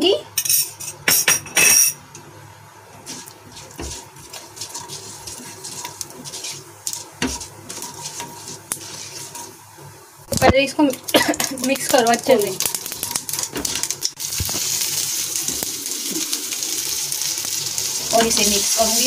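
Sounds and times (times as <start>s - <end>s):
spatula stirring in pan: 2.8s - 10.2s, 11.5s - 19.0s
seeds sizzling in hot oil: 3.0s - 19.0s.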